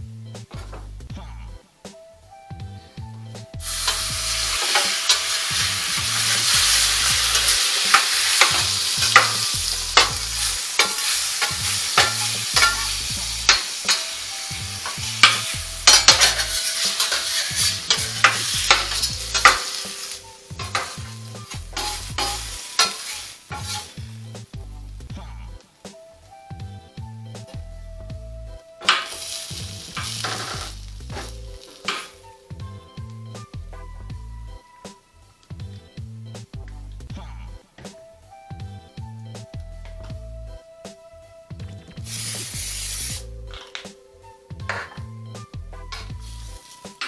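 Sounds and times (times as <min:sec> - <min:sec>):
vegetables sizzling on griddle: 0:03.6 - 0:24.6, 0:28.8 - 0:32.4, 0:42.0 - 0:43.3, 0:46.0 - 0:47.0
metal spatula scraping steel: 0:03.7 - 0:24.0, 0:28.8 - 0:32.2.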